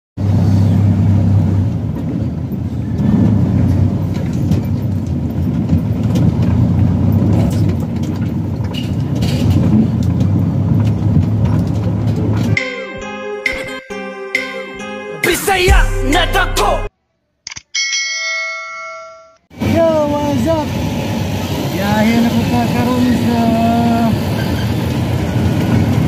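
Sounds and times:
truck diesel engine rumbling: 0.2 - 16.9, 19.6 - 26.0
knocks and rattles: 1.8 - 12.6
music: 12.5 - 16.9.

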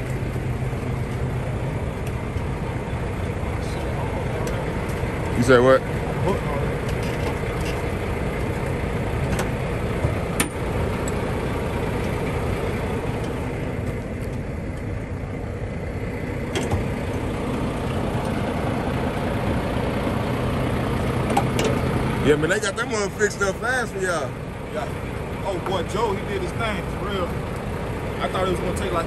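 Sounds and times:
diesel engine idling: 0.0 - 29.0.

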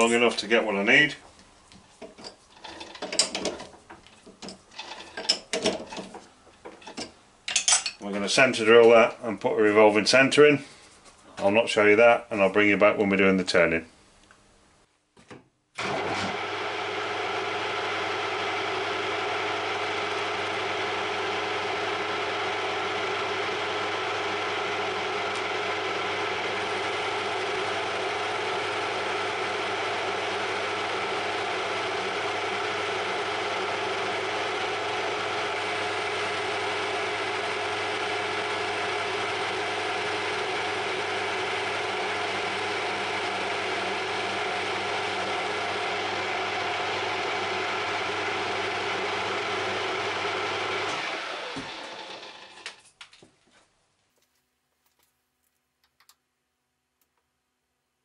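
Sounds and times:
lathe headstock whining: 4.5 - 6.1, 15.8 - 52.8.

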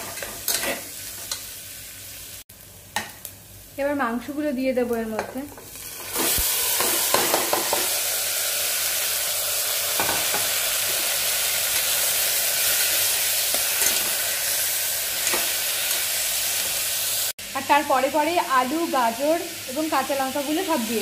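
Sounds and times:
chicken sizzling in oil: 5.5 - 21.0
steel spatula scraping: 6.0 - 7.9.

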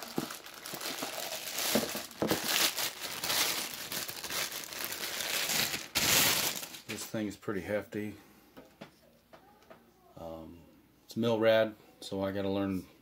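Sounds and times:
plastic wrapping crinkling: 0.0 - 7.1.

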